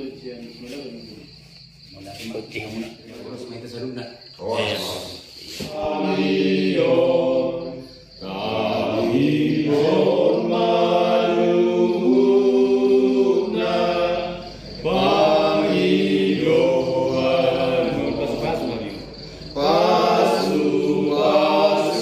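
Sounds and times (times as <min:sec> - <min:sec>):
group singing chant-like prayer: 0:04.4 - 0:22.0.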